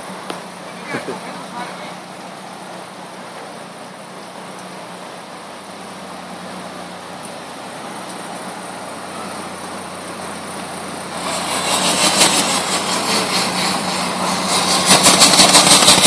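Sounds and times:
pickup truck engine running: 0.0 - 16.0
rapid even pulsing: 7.8 - 16.0.

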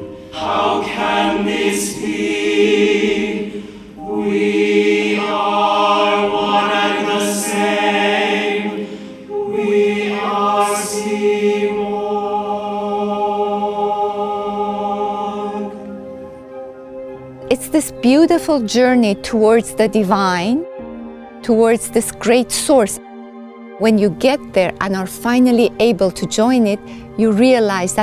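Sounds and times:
choir singing held chords: 0.0 - 18.4.

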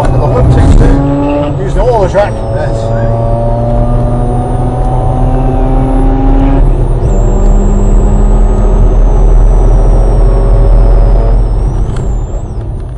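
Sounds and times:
car engine running at speed: 0.0 - 12.9
road and wind rumble: 0.0 - 12.9.

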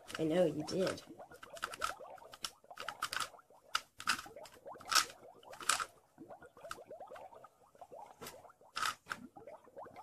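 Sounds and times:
plastic puzzle cube clicking: 0.9 - 4.3, 4.9 - 5.9, 8.8 - 9.2.

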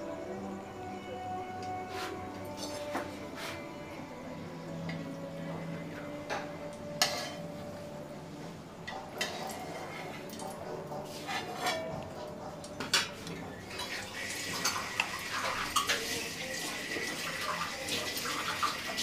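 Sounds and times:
metal spoon clinking on iron pan: 7.0 - 7.5, 8.9 - 10.5, 11.3 - 12.0
hot oil hissing: 13.7 - 19.0.

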